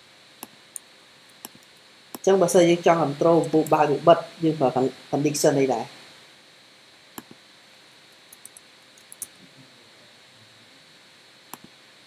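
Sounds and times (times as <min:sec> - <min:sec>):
low hiss: 0:00.0 - 0:12.0
computer mouse clicks: 0:01.4 - 0:02.3, 0:07.2 - 0:07.4, 0:08.3 - 0:09.3, 0:11.5 - 0:11.7.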